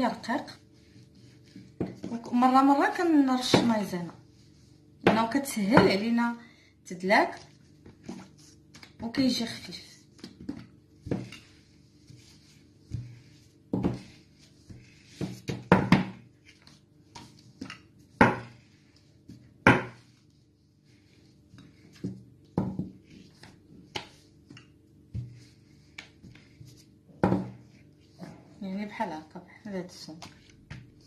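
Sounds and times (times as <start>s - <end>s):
rolling pin knocking on board: 15.2s - 16.2s, 18.2s - 18.5s, 19.6s - 20.0s.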